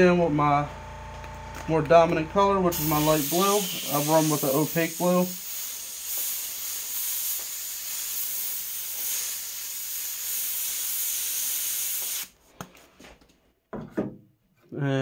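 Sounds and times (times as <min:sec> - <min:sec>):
airbrush hissing: 0:02.7 - 0:12.4.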